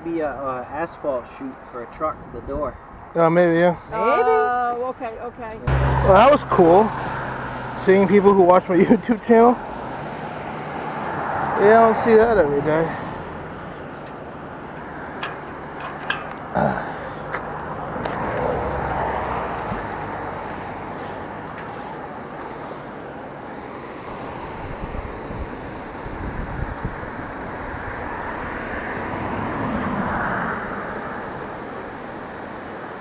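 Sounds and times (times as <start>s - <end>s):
vehicles passing tyre noise: 0.0s - 33.0s
wind buffeting microphone: 24.5s - 28.6s.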